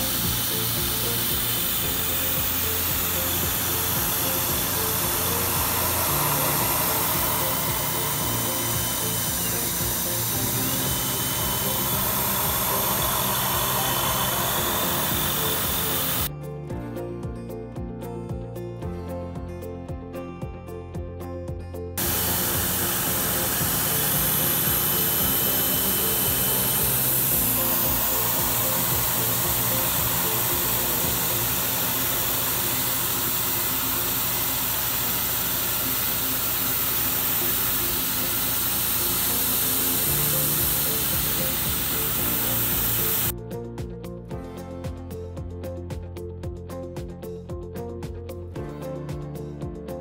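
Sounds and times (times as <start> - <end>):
mill cutting aluminium hiss: 0.0 - 16.3, 22.0 - 43.3
background music: 0.0 - 50.0.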